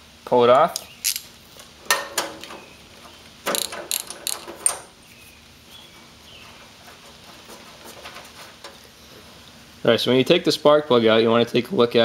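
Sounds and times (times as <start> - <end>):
ratchet wrench clicking: 0.8 - 1.3, 3.5 - 4.8.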